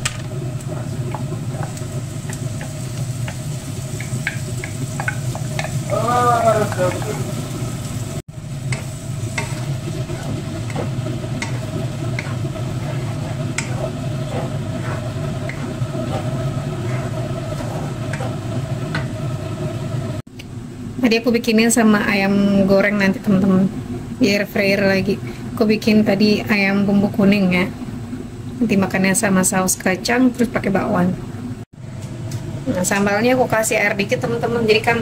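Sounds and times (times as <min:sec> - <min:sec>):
chili paste sizzling in a frying pan: 0:00.0 - 0:20.2
wooden spatula scraping a pan: 0:08.7 - 0:19.2.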